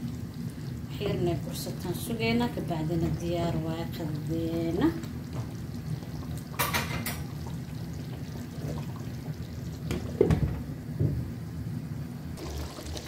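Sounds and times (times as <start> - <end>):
curry bubbling in pan: 0.0 - 10.2.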